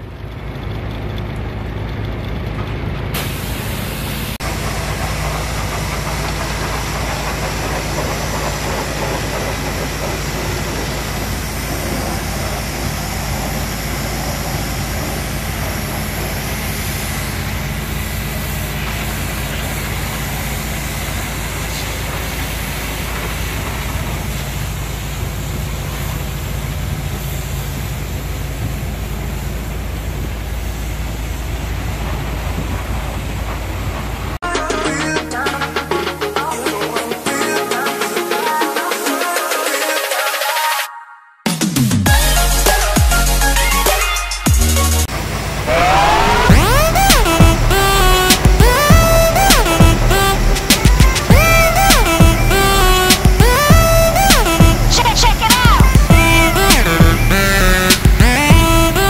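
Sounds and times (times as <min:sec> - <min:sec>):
truck engine running: 0:00.0 - 0:37.6, 0:42.0 - 0:59.0
water jet hissing: 0:03.1 - 0:34.4, 0:45.0 - 0:59.0.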